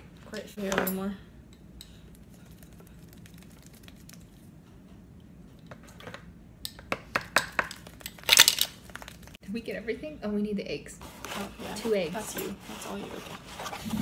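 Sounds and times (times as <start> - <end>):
kitchen items clicking and tapping: 5.6 - 9.3.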